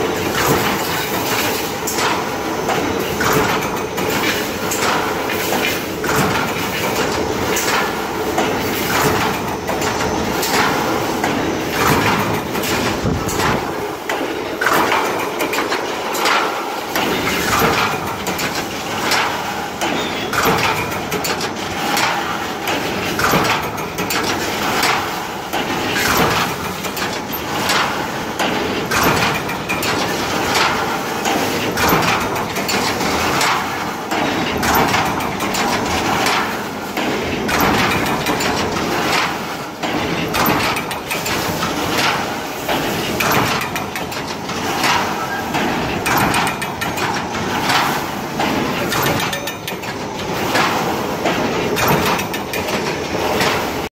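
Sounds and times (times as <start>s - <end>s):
mechanical clatter: 0.0s - 53.9s
fence machine clanking: 40.0s - 53.6s.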